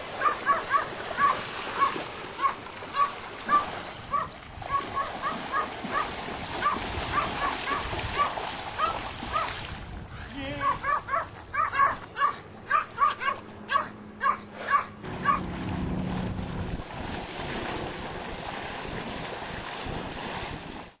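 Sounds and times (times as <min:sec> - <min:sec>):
small dog yapping: 0:00.2 - 0:09.6, 0:10.6 - 0:15.4
steady rushing noise: 0:14.5 - 0:20.1.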